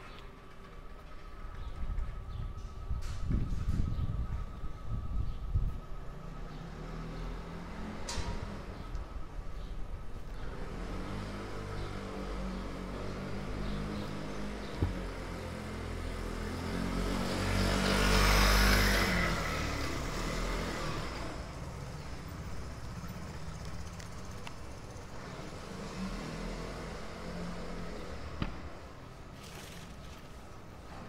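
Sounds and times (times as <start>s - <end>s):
low engine hum: 0.1s - 26.0s
vehicle passing close by: 10.4s - 21.5s.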